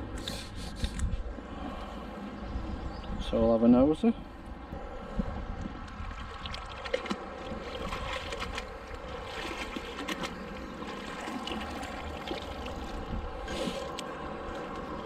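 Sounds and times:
water trickling and lapping: 4.2s - 15.0s.

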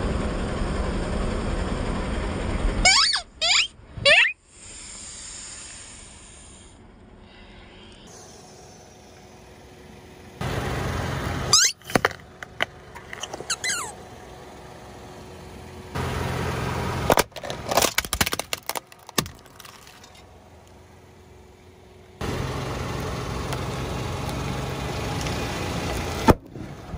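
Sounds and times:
squeaky toy squealing: 2.8s - 4.4s, 11.5s - 11.9s, 13.2s - 14.0s
plastic toy cracking apart: 17.1s - 20.2s.

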